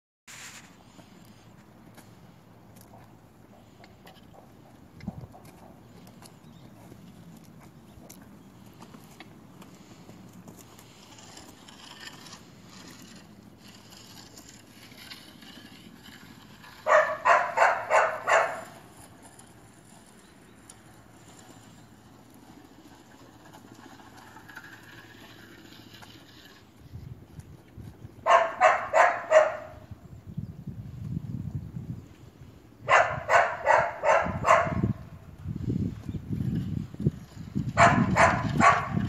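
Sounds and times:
dog barking: 16.9 - 18.8, 28.3 - 29.8, 32.9 - 34.8, 37.8 - 39.0.

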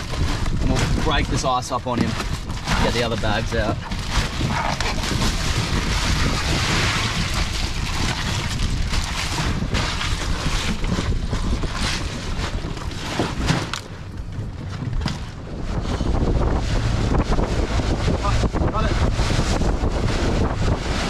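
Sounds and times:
ice crunching and rattling: 0.0 - 15.4
wind buffeting microphone: 0.0 - 21.0.

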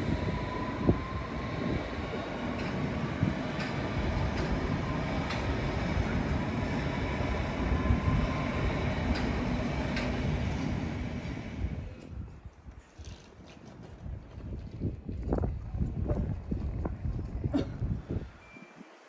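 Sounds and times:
train running over steel bridge: 0.0 - 12.3.

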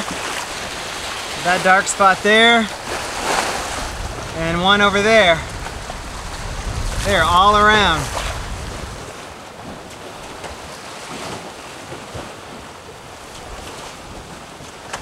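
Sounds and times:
wind buffeting microphone: 0.0 - 11.1
water rushing along boat hulls: 0.0 - 15.0
wind: 0.0 - 15.0.

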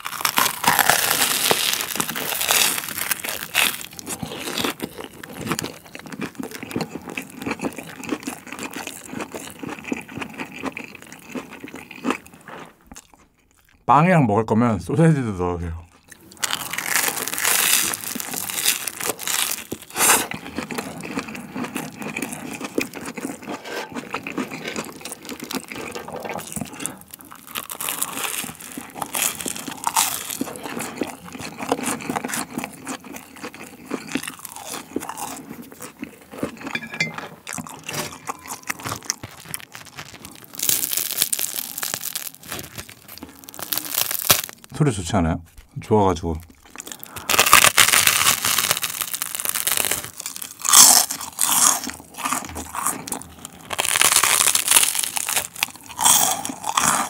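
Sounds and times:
crunchy biting and chewing: 0.0 - 13.8, 15.9 - 44.7, 46.4 - 57.0
toast crust torn by hand: 37.9 - 44.7.

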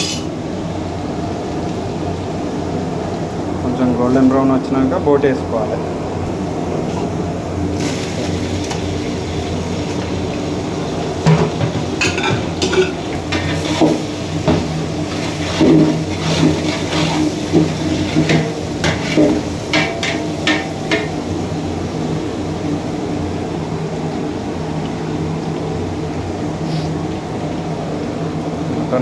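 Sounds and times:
food sizzling in hot oil: 0.0 - 0.4, 7.6 - 23.8.

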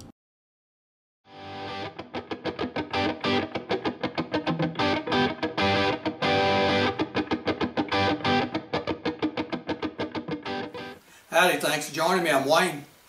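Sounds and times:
electric guitar chords: 1.3 - 11.0.

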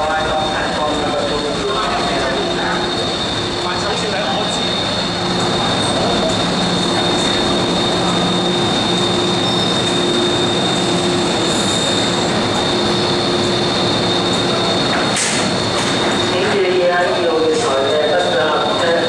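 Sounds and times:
train high-pitched squeal: 0.0 - 19.0
train hum and rumble: 0.0 - 19.0.

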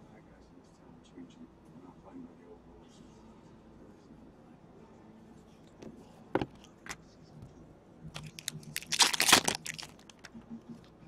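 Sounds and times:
card packs crinkling: 8.2 - 10.3.

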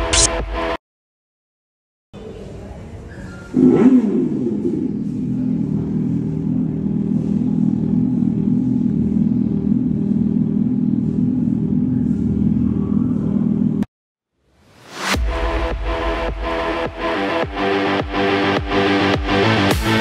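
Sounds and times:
artificial motorcycle engine sound: 3.5 - 13.9.

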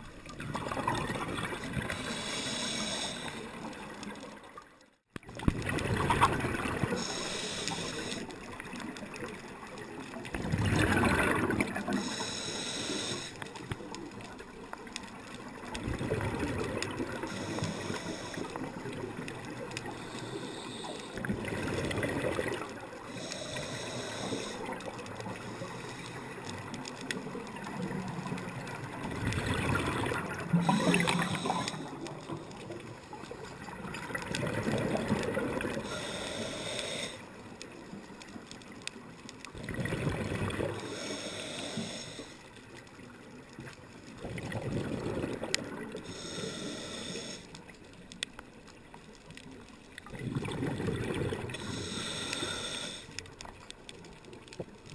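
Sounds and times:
exhaled bubbles rushing: 0.3 - 2.0, 5.3 - 7.1, 10.3 - 12.0, 15.8 - 17.3, 21.3 - 22.7, 29.0 - 31.5, 33.7 - 35.7, 39.6 - 40.8, 44.2 - 46.0, 50.0 - 51.5
diver inhaling through regulator: 1.8 - 3.8, 6.8 - 8.3, 11.8 - 13.5, 17.1 - 18.9, 19.8 - 21.3, 23.1 - 26.5, 30.4 - 32.4, 35.2 - 37.4, 40.6 - 42.5, 45.8 - 47.6, 51.4 - 53.2.

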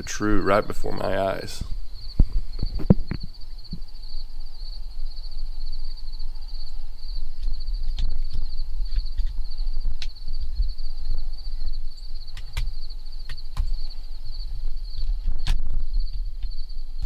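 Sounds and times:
insects trilling: 0.0 - 17.0
wind rumble on microphone: 0.0 - 17.0
sharp clicks: 12.3 - 13.8.

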